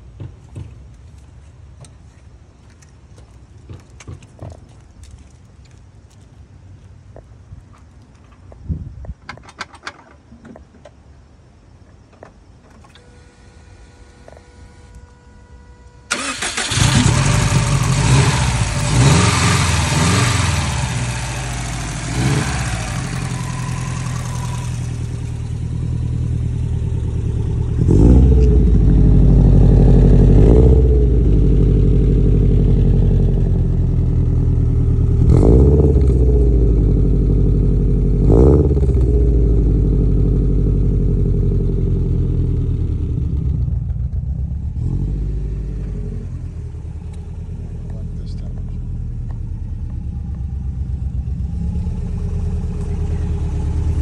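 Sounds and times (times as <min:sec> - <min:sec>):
car engine idling: 0:14.8 - 0:54.0
engine revving: 0:16.1 - 0:54.0.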